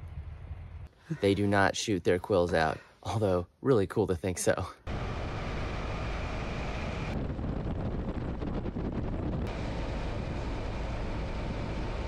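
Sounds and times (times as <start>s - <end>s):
wind rushing over microphone: 0.0s - 0.9s, 5.0s - 12.0s
motorcycle engine drone: 4.9s - 12.0s.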